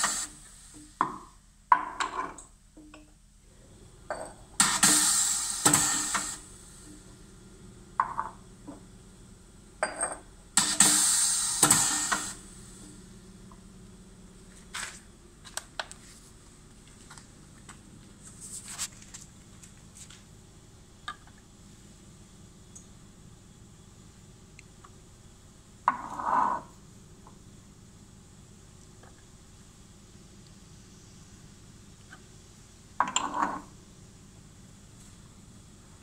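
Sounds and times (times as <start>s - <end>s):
pneumatic doser hiss: 0.0s - 1.0s, 4.6s - 7.1s, 10.6s - 13.0s
glass jar clinking: 9.8s - 10.2s.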